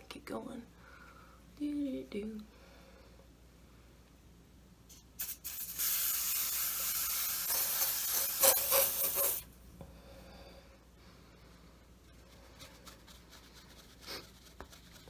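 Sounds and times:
aerosol sprayer hissing: 4.9s - 9.5s.

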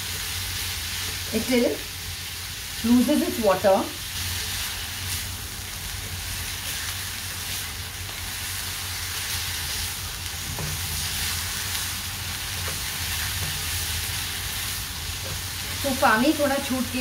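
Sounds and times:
food frying hiss: 0.0s - 17.0s
spatula stirring and scraping: 12.4s - 14.5s.

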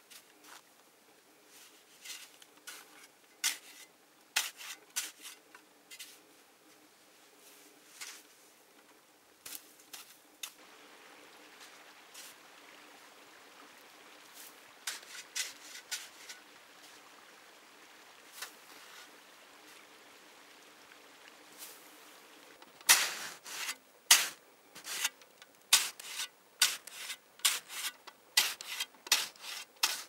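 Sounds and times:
plastic shovel scraping snow: 22.9s - 25.2s, 25.8s - 30.0s.

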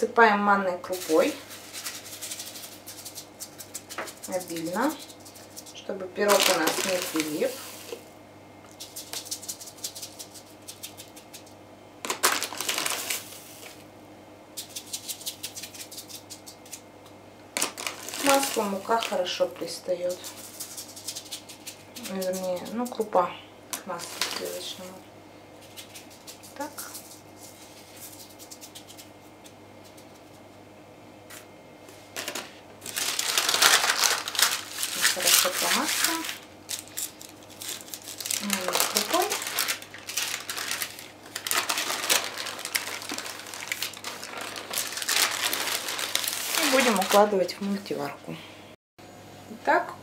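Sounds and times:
grain pattering on paper: 0.9s - 8.1s, 8.7s - 13.8s, 14.6s - 16.8s, 17.6s - 23.1s, 25.6s - 30.4s, 32.8s - 47.3s
semolina grains ticking on paper: 1.4s - 7.4s, 8.7s - 11.6s.

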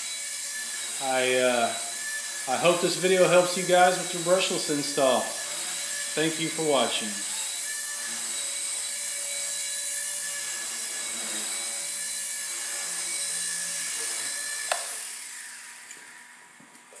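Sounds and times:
toy helicopter motor whine: 0.0s - 16.6s.

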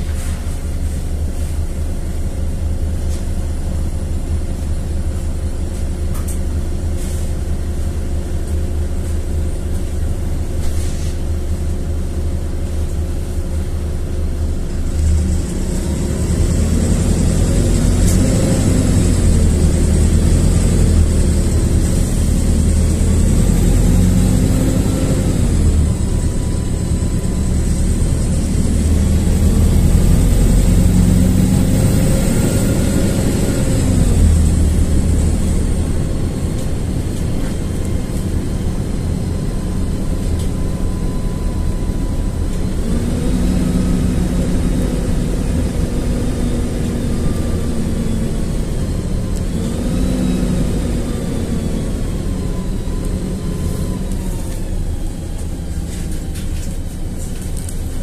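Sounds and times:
bus diesel engine drone: 0.0s - 58.0s
high whine: 18.9s - 56.8s.

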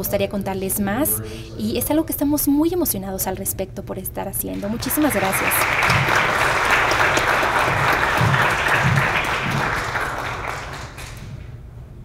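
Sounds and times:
audience applauding: 4.6s - 11.6s.

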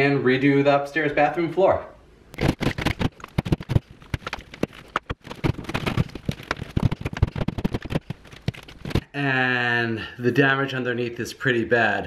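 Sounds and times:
drywall crackling and snapping: 2.3s - 9.1s.

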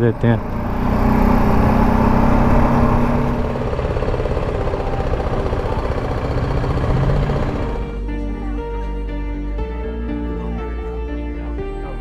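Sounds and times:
motorcycle engine idling: 0.0s - 8.6s.

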